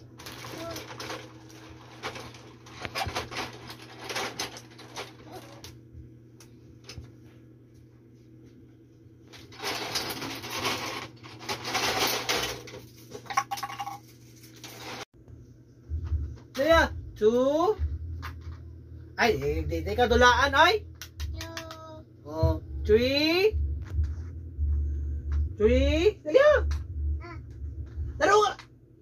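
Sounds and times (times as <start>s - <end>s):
plastic toy dishes rattling: 9.6s - 14.0s.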